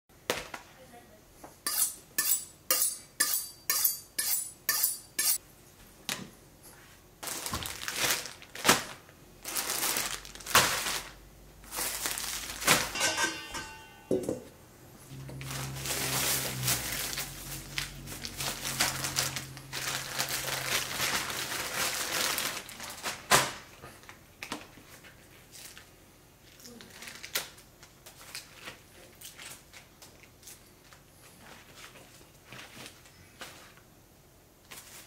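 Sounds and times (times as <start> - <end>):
plastic packaging crinkling: 7.2 - 13.0, 15.2 - 33.8.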